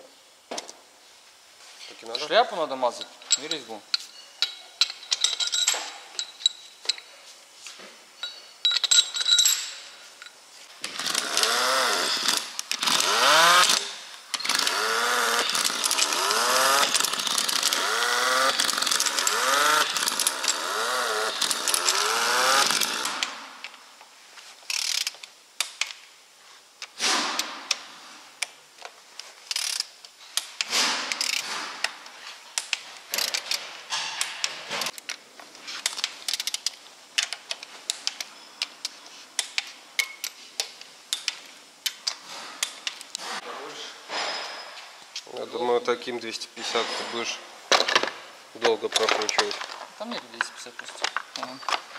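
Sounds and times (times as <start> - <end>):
air wrench spinning bolts: 10.8 - 23.8, 24.7 - 25.9, 29.4 - 32.0, 32.6 - 33.6, 35.8 - 38.8
hand wrench clicking: 10.8 - 23.8, 24.7 - 26.0, 29.4 - 32.0, 35.8 - 43.2.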